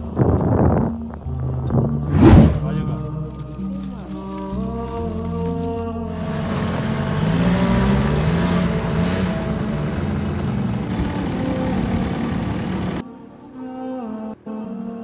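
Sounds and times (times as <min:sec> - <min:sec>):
engine running and revving: 0:01.3 - 0:02.9, 0:06.1 - 0:13.0
dense rushing noise: 0:02.0 - 0:03.0.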